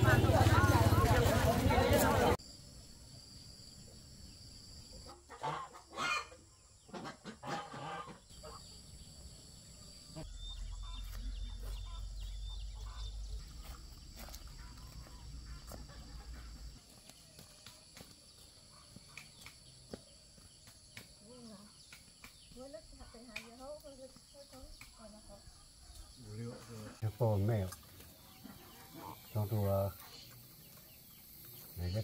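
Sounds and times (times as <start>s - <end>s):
chickens clucking: 5.1s - 8.7s, 10.7s - 17.5s, 25.6s - 31.7s.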